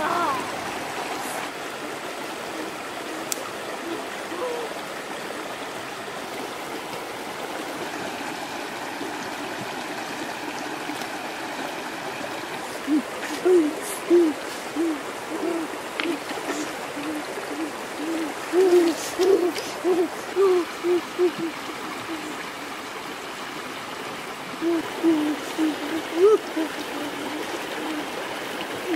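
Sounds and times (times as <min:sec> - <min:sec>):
river rushing over rocks: 0:00.0 - 0:28.9
bird hooting: 0:01.8 - 0:04.8, 0:12.8 - 0:22.5, 0:24.6 - 0:28.2.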